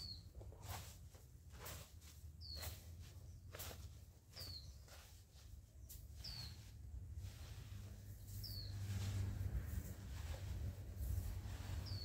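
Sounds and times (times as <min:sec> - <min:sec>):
small bird chirping: 0:00.0 - 0:00.9, 0:02.4 - 0:06.8, 0:08.1 - 0:09.1, 0:11.5 - 0:12.0
faint outdoor ambience: 0:00.0 - 0:12.0
soft rustles or steps: 0:00.0 - 0:12.0.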